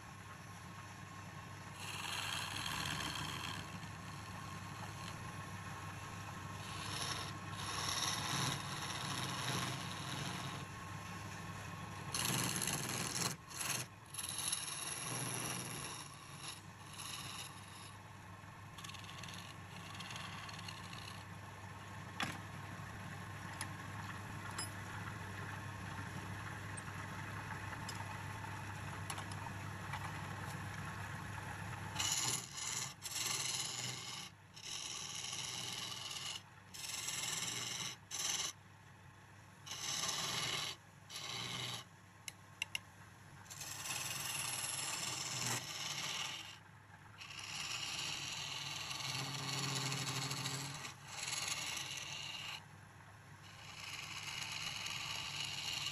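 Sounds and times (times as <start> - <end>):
chisel scraping spinning wood: 1.8 - 5.3, 6.6 - 10.8, 12.1 - 18.0, 18.8 - 21.3, 31.9 - 38.6, 39.7 - 41.9, 43.5 - 46.6, 47.2 - 52.6, 53.5 - 55.9
lathe humming: 39.7 - 41.8.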